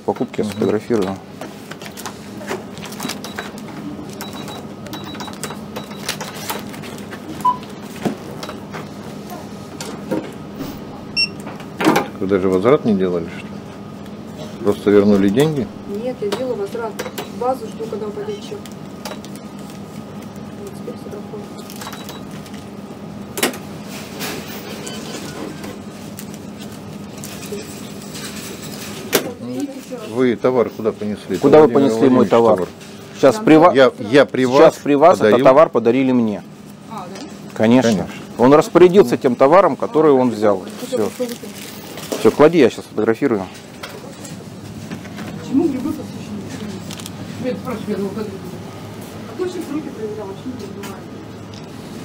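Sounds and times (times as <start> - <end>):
steady electrical hum: 0.0 - 52.0
short electronic beep: 11.1 - 11.4.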